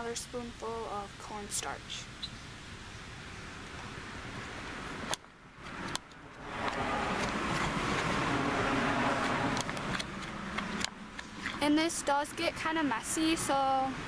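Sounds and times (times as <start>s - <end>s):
car passing: 3.0s - 11.7s.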